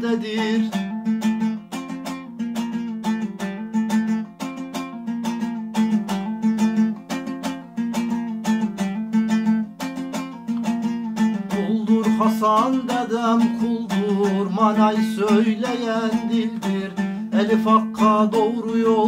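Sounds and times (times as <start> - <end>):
lute strummed quickly: 0.0 - 19.0.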